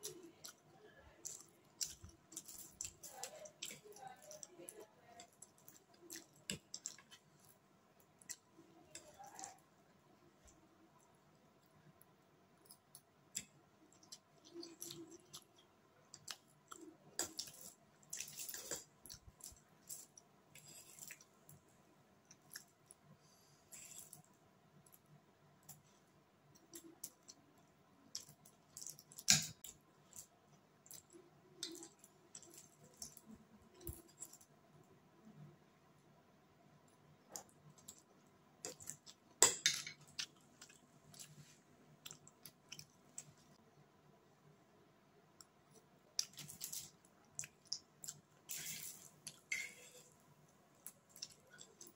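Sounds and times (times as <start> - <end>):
chewing: 0.0 - 9.8, 12.6 - 21.6, 22.2 - 25.9, 26.5 - 34.6, 37.0 - 43.6, 45.3 - 51.9.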